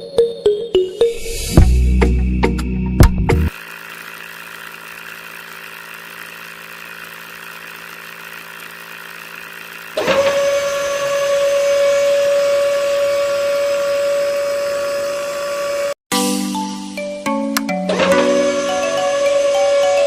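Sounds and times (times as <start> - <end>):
geared motor whining: 3.5 - 16.0, 17.9 - 20.0
small motors humming: 3.5 - 16.0, 17.9 - 20.0.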